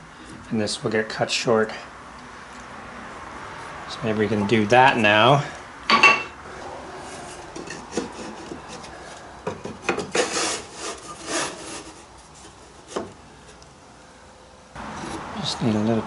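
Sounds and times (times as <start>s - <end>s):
wood scraping against wood: 7.0s - 13.6s, 14.8s - 15.4s.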